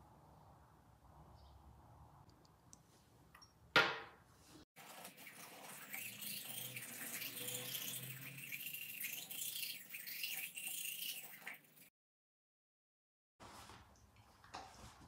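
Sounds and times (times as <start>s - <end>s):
toothbrush scrubbing teeth: 4.8s - 11.9s.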